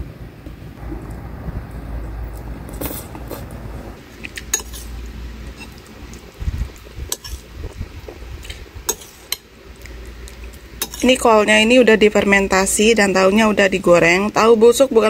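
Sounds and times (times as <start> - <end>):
metal spoon scraping ceramic plate: 4.5 - 4.9, 7.2 - 7.4, 8.9 - 9.4, 10.8 - 11.2.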